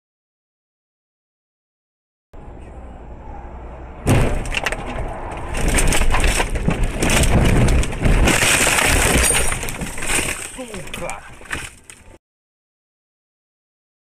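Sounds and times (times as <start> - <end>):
road noise inside car: 2.4 - 12.2
loud car impact: 4.0 - 11.8
car crunching through bushes: 4.1 - 12.2.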